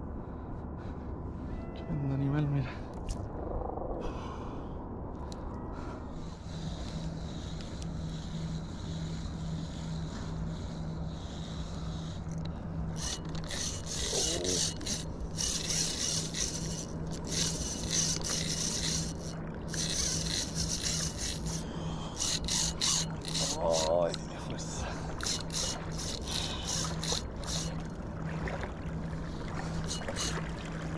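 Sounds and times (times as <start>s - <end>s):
low steady hum: 0.0s - 30.9s
fishing reel cranking whir: 6.3s - 24.2s, 25.1s - 27.9s, 29.8s - 30.4s.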